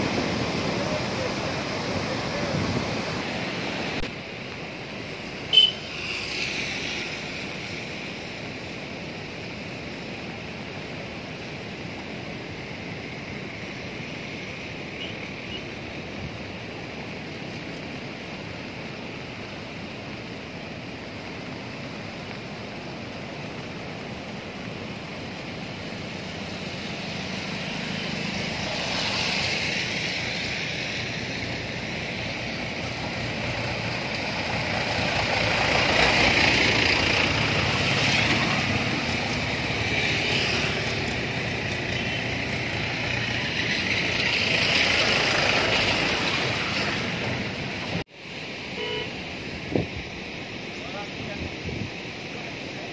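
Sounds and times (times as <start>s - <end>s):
flood river rushing: 0.0s - 52.9s
vehicles passing on bridge: 0.0s - 52.9s.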